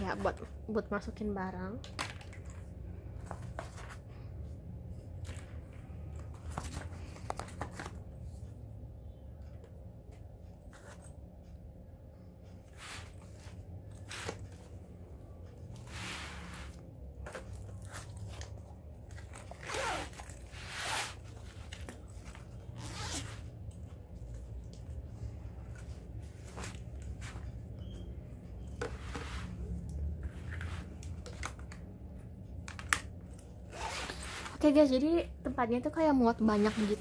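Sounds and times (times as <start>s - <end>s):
low steady hum: 0.0s - 37.0s
fabric rustling: 15.7s - 18.5s, 33.8s - 34.8s, 36.4s - 37.0s.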